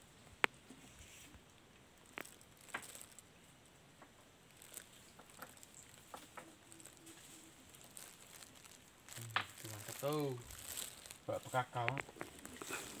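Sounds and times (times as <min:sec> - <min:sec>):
faint clicks and taps: 0:11.8 - 0:12.7.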